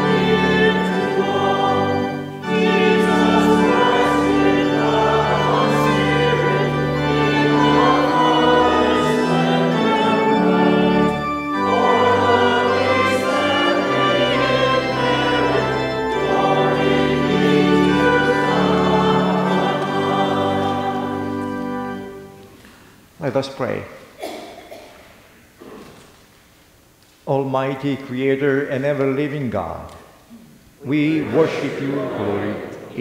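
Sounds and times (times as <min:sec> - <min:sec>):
congregation singing a hymn: 0:00.0 - 0:22.6, 0:30.8 - 0:33.0
organ accompaniment: 0:00.0 - 0:22.8, 0:30.8 - 0:33.0.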